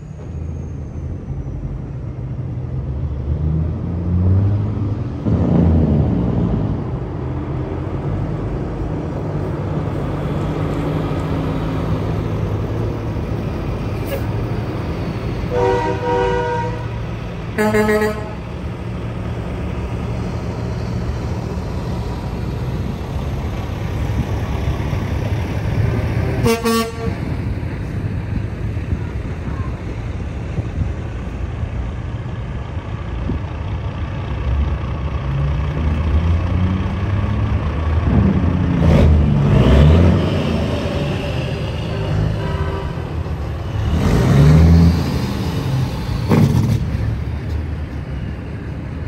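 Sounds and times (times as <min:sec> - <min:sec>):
truck engines running: 0:00.0 - 0:49.0
truck horn blast: 0:15.5 - 0:18.6, 0:26.4 - 0:27.4, 0:41.1 - 0:43.2.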